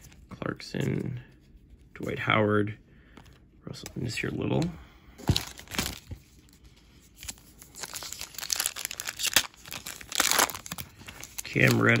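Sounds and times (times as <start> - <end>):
foil wrapper tearing and crinkling: 7.2 - 12.0.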